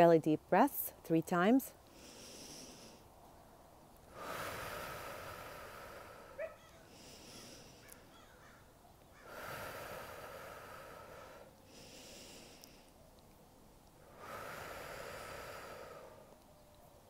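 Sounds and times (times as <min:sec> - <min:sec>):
woman breathing deeply: 0:01.9 - 0:03.2, 0:04.1 - 0:08.6, 0:09.2 - 0:13.0, 0:14.0 - 0:16.4.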